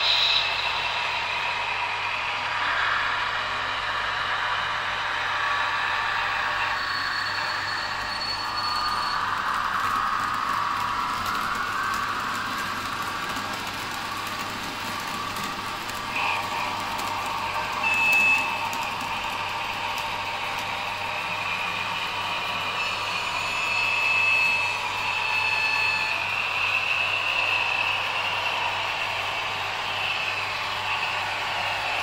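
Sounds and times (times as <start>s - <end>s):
high thin squeal: 0.0s - 4.2s, 5.2s - 10.7s, 22.0s - 28.0s
model train rumbling on rails: 0.0s - 32.0s.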